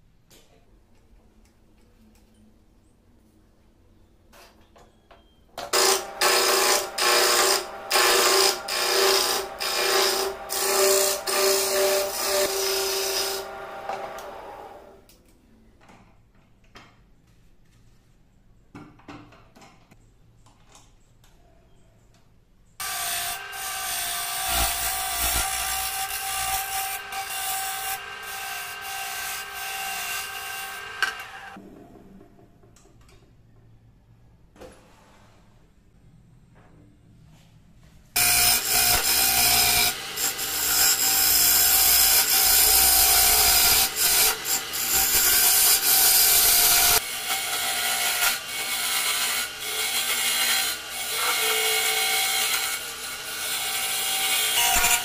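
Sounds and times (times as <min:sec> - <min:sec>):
wood lathe tool cutting: 0:05.7 - 0:14.9, 0:22.8 - 0:31.6, 0:38.2 - 0:55.0.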